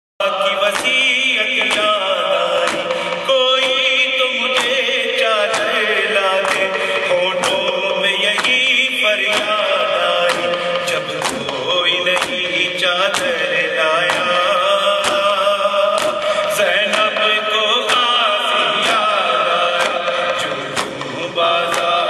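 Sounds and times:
man chanting into a microphone: 0:00.2 - 0:22.0
sharp beats: 0:00.4 - 0:22.0.

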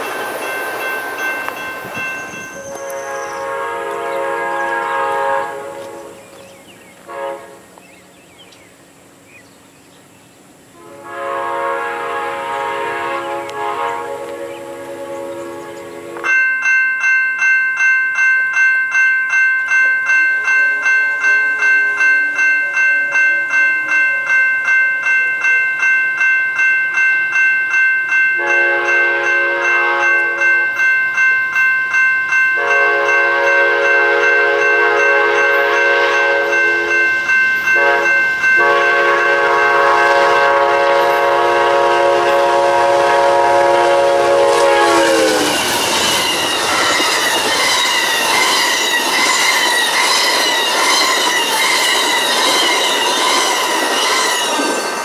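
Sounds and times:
crossing bell ringing: 0:00.0 - 0:07.3, 0:11.1 - 0:55.0
train horn blasts: 0:02.5 - 0:07.8, 0:10.8 - 0:16.4, 0:20.4 - 0:24.4, 0:28.4 - 0:30.8, 0:32.6 - 0:53.4.

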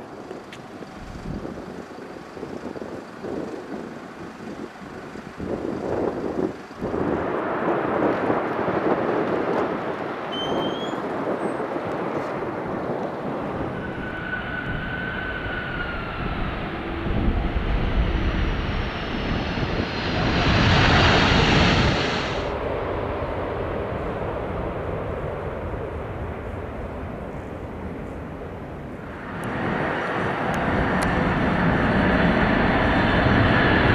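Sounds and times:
jet engine noise: 0:00.0 - 0:33.9
jet whine falling in pitch: 0:13.5 - 0:22.5.

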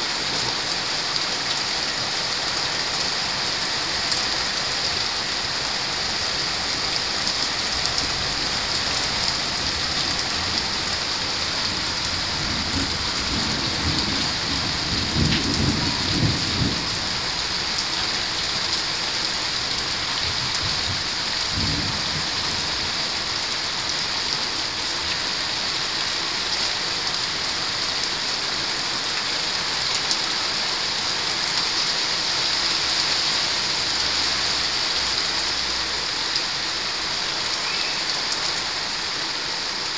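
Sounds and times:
steady rain hissing: 0:00.0 - 0:39.9
thunder rumbling: 0:07.8 - 0:17.4.

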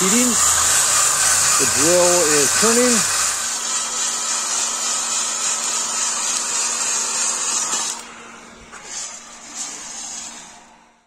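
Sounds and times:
electric screwdriver turning: 0:00.0 - 0:08.0
heat gun blowing: 0:00.0 - 0:10.7.

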